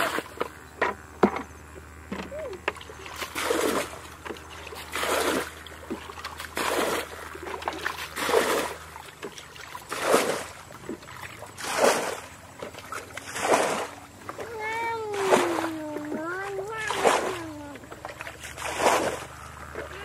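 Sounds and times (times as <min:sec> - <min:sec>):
bucket of water splashing: 0:02.1 - 0:20.0.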